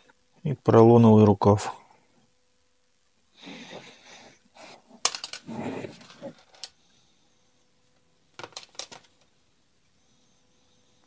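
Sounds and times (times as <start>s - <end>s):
parts rustling on workbench: 4.6s - 6.8s, 8.4s - 9.3s.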